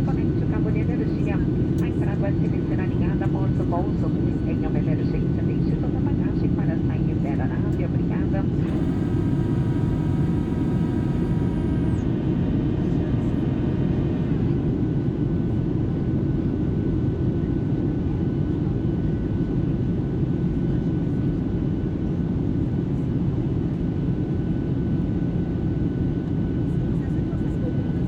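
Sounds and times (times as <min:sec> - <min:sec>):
jet engine cabin roar: 0:00.0 - 0:18.8
faint whining tones: 0:07.8 - 0:14.6.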